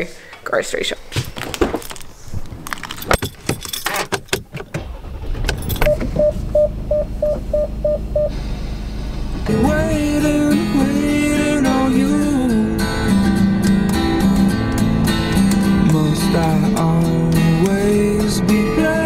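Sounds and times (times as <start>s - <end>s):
car engine starting and idling: 2.7s - 19.0s
car door clicks and knocks: 3.0s - 6.2s
dashboard chime beeping: 5.8s - 8.3s.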